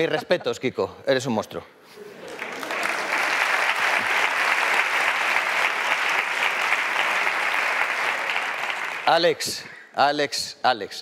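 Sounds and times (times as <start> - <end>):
audience applauding: 2.2 - 9.4.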